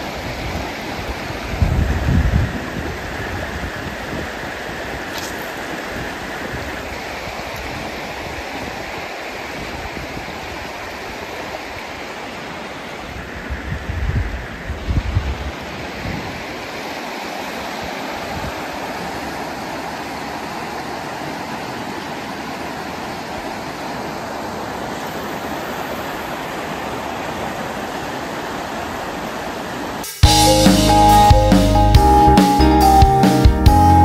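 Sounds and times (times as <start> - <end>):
river water rushing over rocks: 0.0 - 13.8, 14.5 - 30.2
music with drums and guitar: 30.0 - 34.0.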